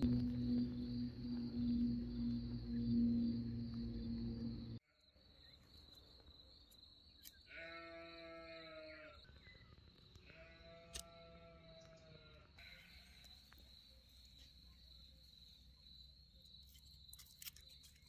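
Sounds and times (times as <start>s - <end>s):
insect chirring: 0.0s - 4.8s, 12.6s - 18.0s
livestock bleating: 7.5s - 9.2s, 10.3s - 13.3s.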